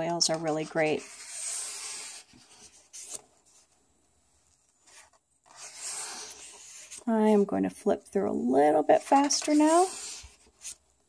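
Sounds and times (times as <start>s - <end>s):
page turning: 0.3s - 3.7s.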